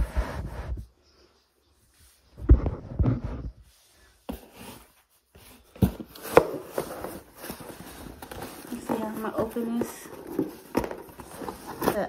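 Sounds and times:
cardboard rustling: 0:02.4 - 0:12.0
cardboard box thumps: 0:05.7 - 0:12.0.

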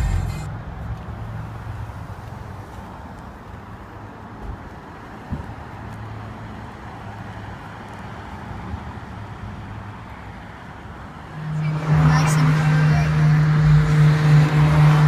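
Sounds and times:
louder swelling sound: 0:00.0 - 0:00.5, 0:11.3 - 0:15.0
traffic engine hum: 0:00.0 - 0:15.0.

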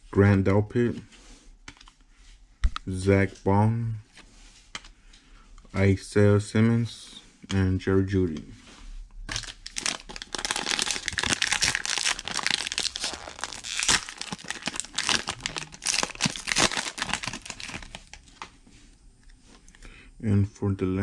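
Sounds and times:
plastic wrapper tearing and crinkling: 0:09.3 - 0:18.5.

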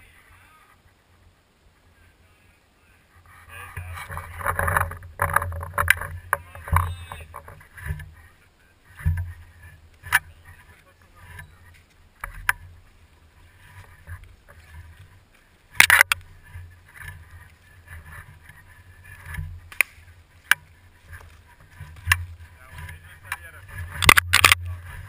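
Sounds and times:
camera handling rumble: 0:15.8 - 0:16.2, 0:23.8 - 0:25.0
sharp clicks: 0:15.8 - 0:16.2, 0:23.3 - 0:24.8.

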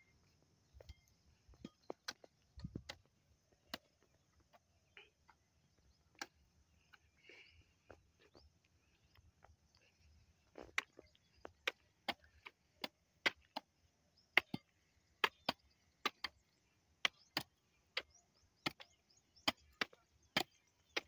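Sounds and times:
hand hoe chopping hard soil: 0:10.6 - 0:13.7, 0:14.3 - 0:16.4, 0:17.0 - 0:21.0.

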